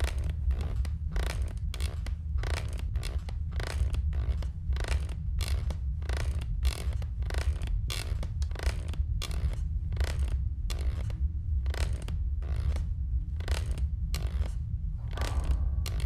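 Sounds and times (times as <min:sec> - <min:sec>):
rocking horse creaking: 0:00.0 - 0:16.0
low rumble: 0:12.2 - 0:16.0.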